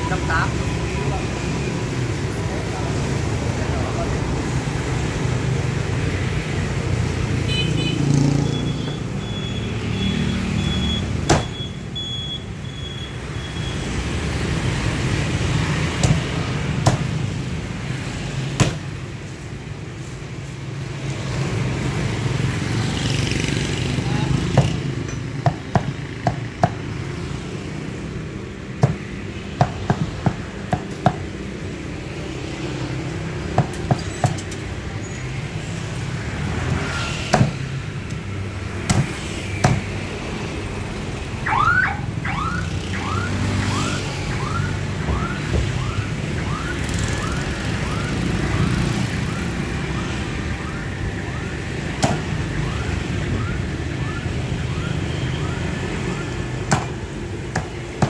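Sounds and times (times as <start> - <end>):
motorbikes passing: 0.0 - 11.3, 13.9 - 58.0
street traffic rumble: 0.0 - 58.0
cleaver chopping on wooden block: 16.0 - 17.1.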